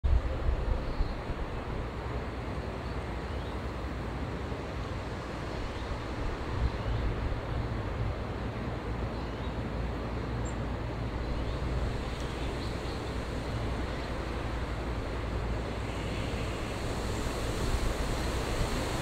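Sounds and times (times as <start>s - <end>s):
even hiss: 11.6s - 19.0s.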